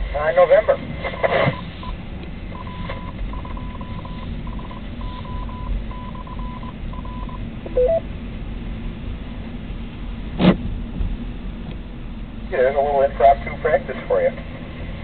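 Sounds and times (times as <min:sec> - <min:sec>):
car road noise: 0:00.0 - 0:15.0
morse code beeping tone: 0:01.1 - 0:08.0
two-note beep: 0:02.6 - 0:08.0.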